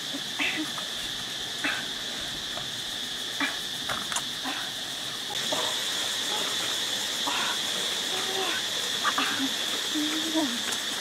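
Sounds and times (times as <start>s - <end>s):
even hiss: 0.0s - 11.0s
insects droning: 0.0s - 11.0s.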